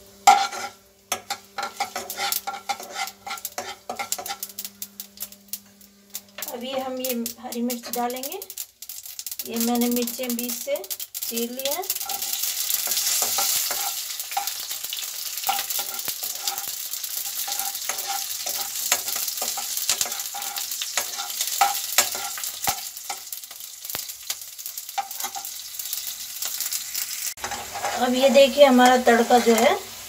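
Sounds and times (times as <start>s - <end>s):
spices sizzling in hot oil: 0.0s - 30.0s
ladle scraping against pan: 0.2s - 4.6s, 12.0s - 14.7s, 15.4s - 23.2s, 27.4s - 28.6s.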